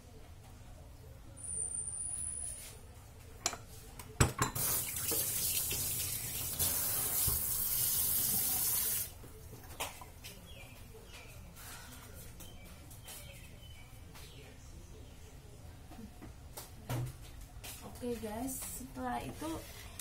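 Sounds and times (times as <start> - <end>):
water running from a tap: 4.6 - 9.1.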